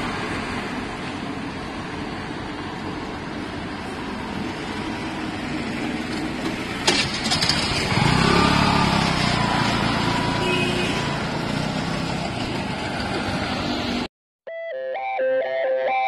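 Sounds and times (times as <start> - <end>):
passing road traffic: 0.0 - 14.1
scooter engine starting and running: 1.4 - 14.1.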